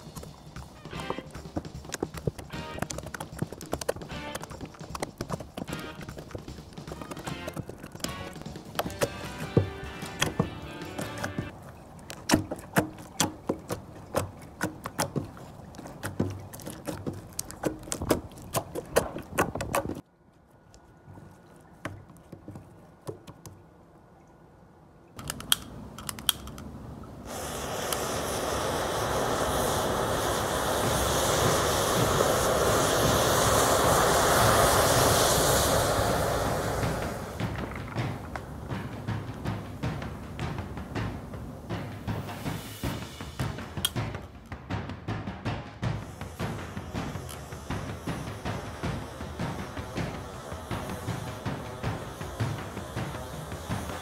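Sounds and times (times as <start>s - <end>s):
matches burning with rushing flame: 0.0s - 12.3s, 27.2s - 44.6s, 45.8s - 54.0s.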